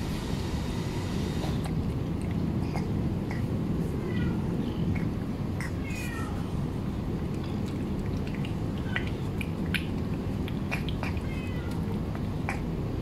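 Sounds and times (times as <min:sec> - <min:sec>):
low background hum: 0:00.0 - 0:13.0
cat chewing and licking: 0:01.4 - 0:04.1, 0:04.9 - 0:13.0
cat meowing: 0:04.0 - 0:05.1, 0:05.7 - 0:06.5, 0:11.0 - 0:12.0.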